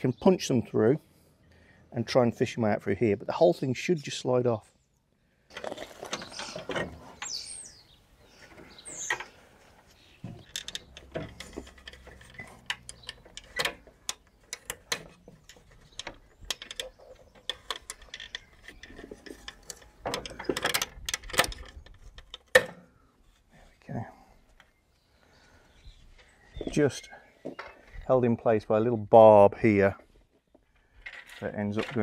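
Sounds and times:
plastic clicks and creaks: 8.4s - 23.4s.

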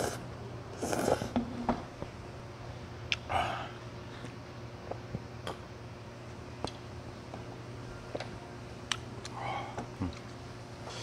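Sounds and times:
faint steady hum: 0.0s - 11.0s
person sipping from cup: 0.8s - 1.4s.

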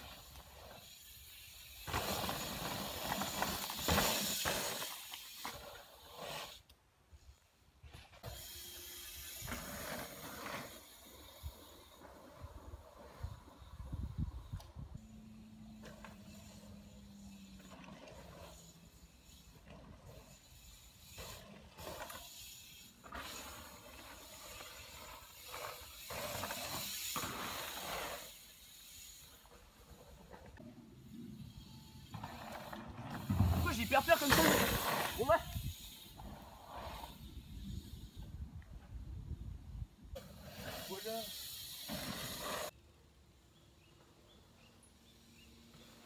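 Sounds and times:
bike tyres on packed dirt: 0.0s - 46.0s
bicycle freewheel hub ticking: 8.2s - 9.5s, 18.5s - 27.6s.

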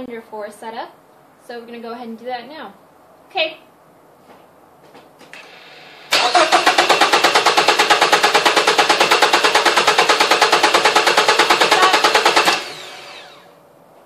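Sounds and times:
starter motor cranking engine: 5.3s - 13.6s.

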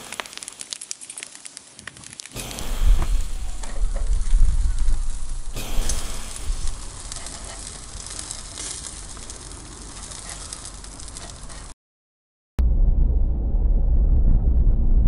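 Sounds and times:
meat sizzling on a grill: 0.0s - 11.7s.

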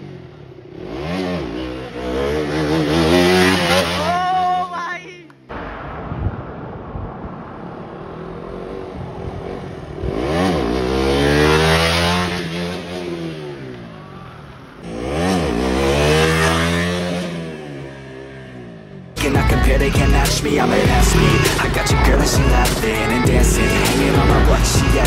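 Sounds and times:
motorcycles revving past: 0.0s - 4.2s, 8.0s - 19.2s.

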